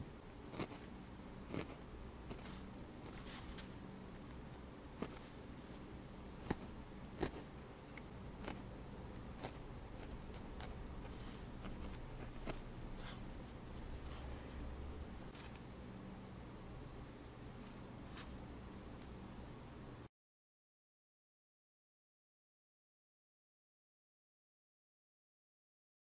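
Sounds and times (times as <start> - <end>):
faint low hum: 0.0 - 20.1.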